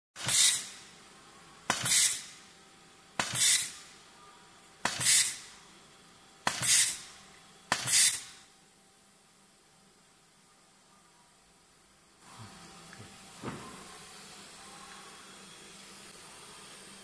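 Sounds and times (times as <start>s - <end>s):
compressed air hissing: 0.2s - 0.9s, 1.7s - 2.5s, 3.2s - 3.9s, 4.9s - 5.6s, 6.5s - 8.5s.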